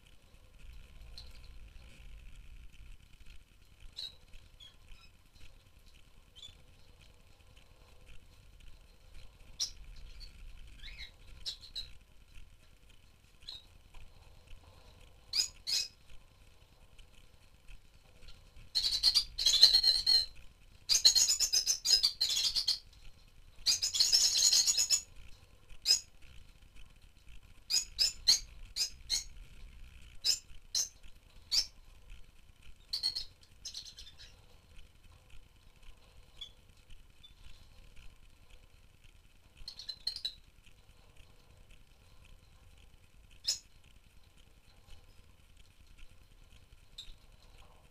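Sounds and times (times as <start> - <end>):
lovebirds chirping: 3.8 - 6.9, 8.7 - 12.0, 14.7 - 16.1, 18.1 - 23.0, 23.6 - 25.2, 27.7 - 29.4, 30.2 - 31.9, 32.8 - 34.6, 39.6 - 40.5
lovebirds chattering: 9.5 - 12.0, 15.3 - 16.1, 18.3 - 22.9, 23.6 - 25.1, 27.7 - 29.4, 30.2 - 31.8, 32.8 - 34.6.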